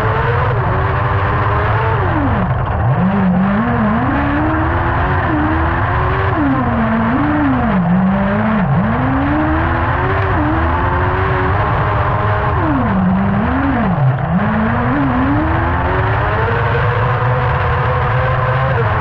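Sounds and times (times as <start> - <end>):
buggy engine revving: 0.0 - 19.0.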